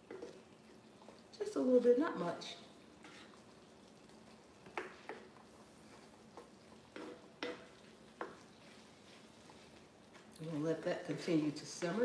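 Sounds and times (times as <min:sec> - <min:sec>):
faint simmering: 0:00.0 - 0:12.0
spatula knocking and scraping pan: 0:03.0 - 0:03.4, 0:04.6 - 0:10.3.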